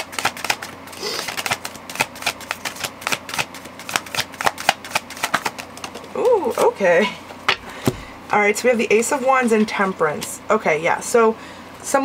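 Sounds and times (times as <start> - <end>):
cards being shuffled by hand: 0.0 - 6.8.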